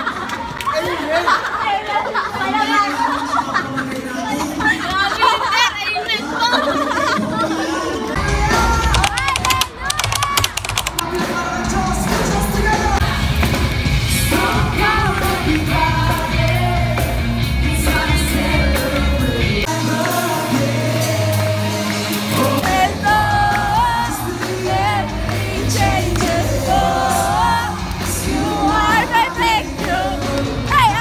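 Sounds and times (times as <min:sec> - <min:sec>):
worship song with band: 0:11.0 - 0:31.0.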